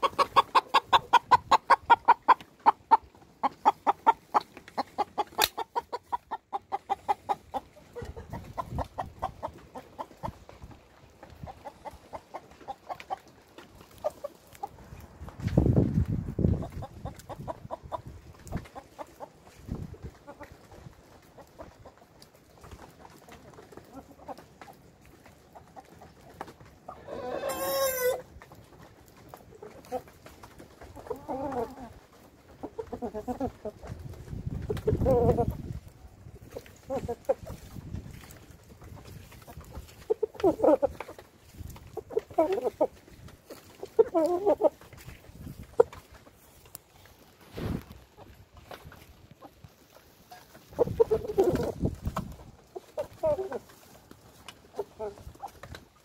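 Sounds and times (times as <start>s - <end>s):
chickens clucking: 0.0s - 56.0s.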